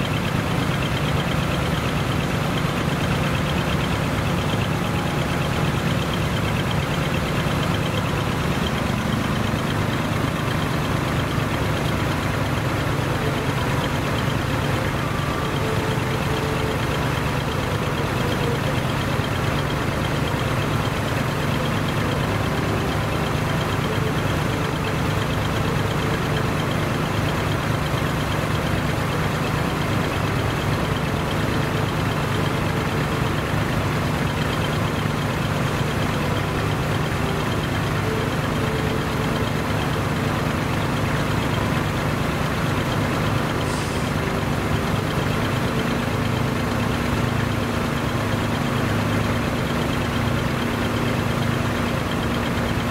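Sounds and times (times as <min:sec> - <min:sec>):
higher steady hum: 0:00.0 - 0:42.2
diesel truck engine idling: 0:00.0 - 0:52.9.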